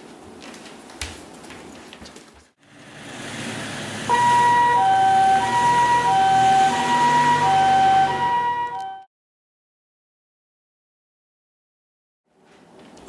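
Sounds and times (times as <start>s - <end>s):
vehicle noise: 2.6s - 9.1s
two-tone ambulance siren: 3.7s - 9.1s.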